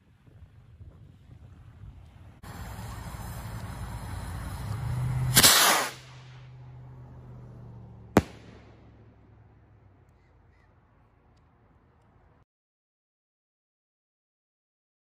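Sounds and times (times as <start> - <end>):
firework rocket rushing: 2.4 - 6.6, 8.2 - 9.0
firework shell bang: 5.3 - 6.4, 8.2 - 9.0
loud crack: 5.3 - 6.7, 8.1 - 9.6.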